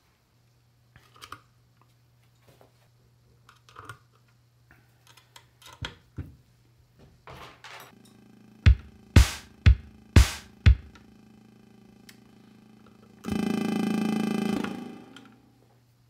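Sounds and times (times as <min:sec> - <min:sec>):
low synth tone: 0:08.0 - 0:15.6.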